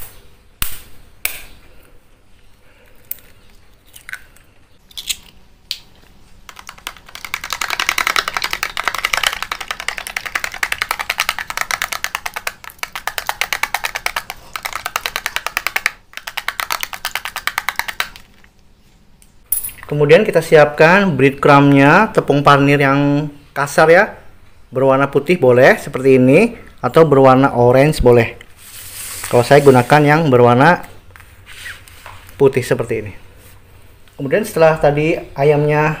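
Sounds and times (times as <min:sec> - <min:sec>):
egg cracking knocks: 0:06.4 - 0:18.4.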